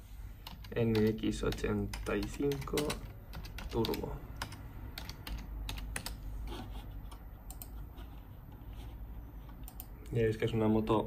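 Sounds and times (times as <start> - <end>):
keyboard keystroke clicks: 7.1 - 7.8.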